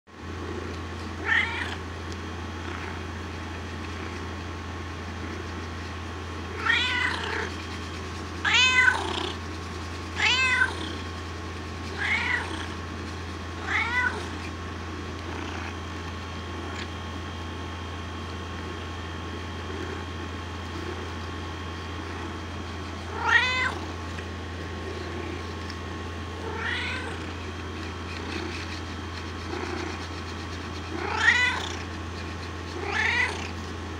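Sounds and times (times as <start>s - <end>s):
cat meowing: 1.2s - 1.8s, 6.6s - 7.5s, 8.4s - 9.3s, 10.2s - 10.9s, 11.9s - 12.7s, 13.6s - 14.4s, 23.1s - 23.9s, 26.4s - 27.3s, 31.0s - 31.8s, 32.8s - 33.5s.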